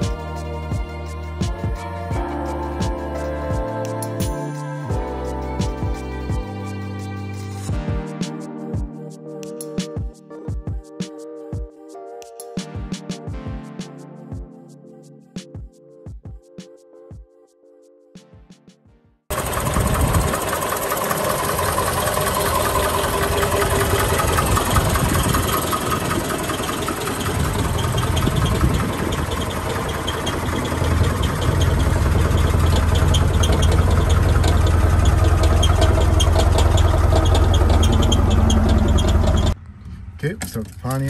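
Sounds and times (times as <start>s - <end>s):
car engine idling: 19.3s - 41.0s.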